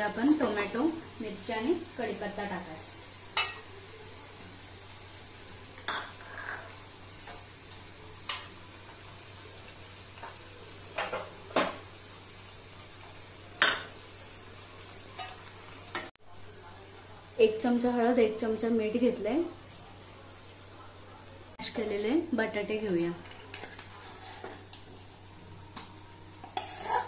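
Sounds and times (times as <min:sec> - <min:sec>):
onions sizzling in oil: 0:00.0 - 0:27.0
metal spoon scraping a pan: 0:05.8 - 0:07.4, 0:23.2 - 0:24.7, 0:26.4 - 0:27.0.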